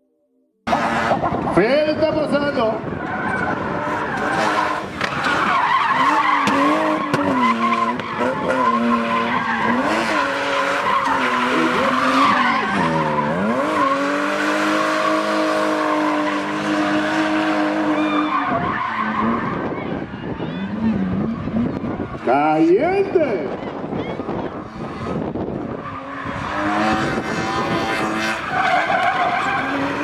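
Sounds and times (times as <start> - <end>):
car engine revving: 0.6 - 1.6, 2.8 - 22.3, 23.5 - 30.0
tyres squealing: 3.0 - 16.6.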